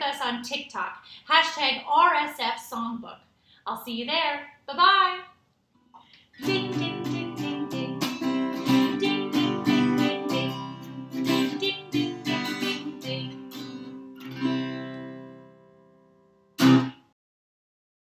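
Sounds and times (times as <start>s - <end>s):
acoustic guitar strumming: 6.4s - 17.1s
loud guitar strike: 16.6s - 17.0s.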